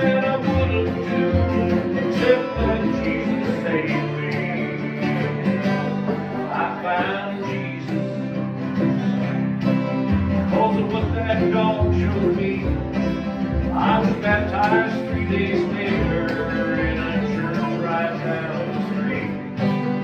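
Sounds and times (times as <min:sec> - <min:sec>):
acoustic guitar: 0:00.0 - 0:20.0
plucked string instruments: 0:00.0 - 0:20.0
repeating bass line: 0:10.1 - 0:19.3.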